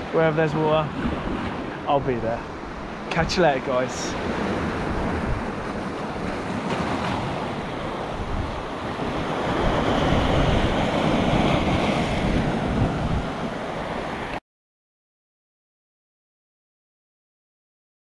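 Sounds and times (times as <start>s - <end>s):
waves breaking on rocky shore: 0.0s - 14.3s
wind buffeting microphone: 0.6s - 14.0s.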